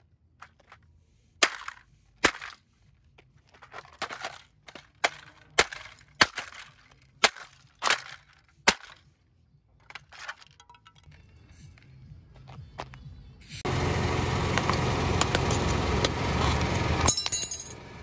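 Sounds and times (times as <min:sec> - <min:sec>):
plastic fragments scraping and rattling: 0:03.2 - 0:09.0, 0:09.8 - 0:11.1.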